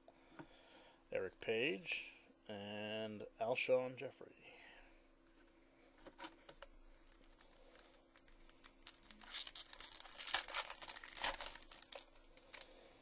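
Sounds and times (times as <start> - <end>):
foil wrapper crinkling: 6.9 - 12.8.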